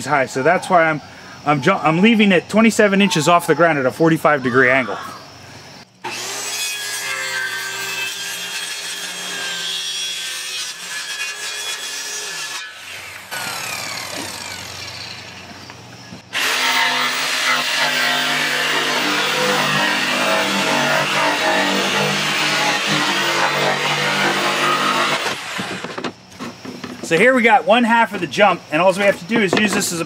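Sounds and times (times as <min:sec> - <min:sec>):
circular saw cutting plywood: 0:06.0 - 0:15.6, 0:16.3 - 0:26.1.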